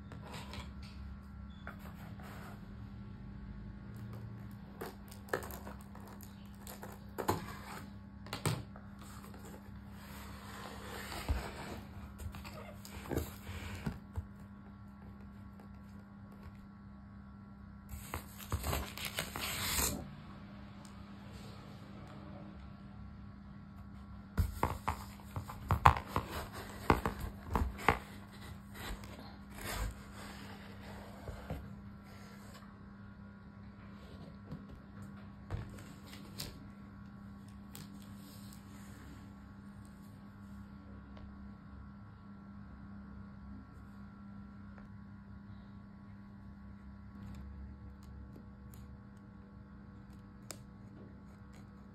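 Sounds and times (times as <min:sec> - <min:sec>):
faint steady hum: 0:00.0 - 0:51.9
tape cutting and cardboard rustling: 0:17.9 - 0:20.0.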